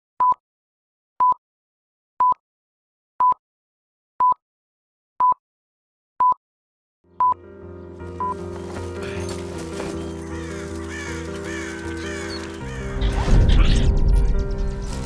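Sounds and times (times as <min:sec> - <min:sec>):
music: 0:07.1 - 0:15.0
countdown beeps: 0:07.2 - 0:07.5.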